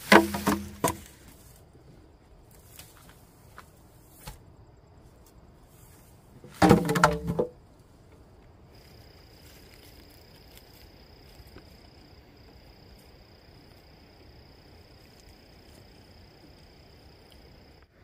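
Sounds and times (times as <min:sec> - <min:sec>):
sharp wooden knocks: 0:00.0 - 0:01.1, 0:06.6 - 0:07.5.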